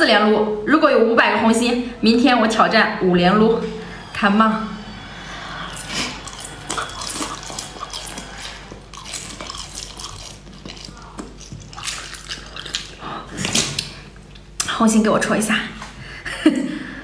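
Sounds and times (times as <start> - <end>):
wet sucking and slurping: 3.7 - 13.9.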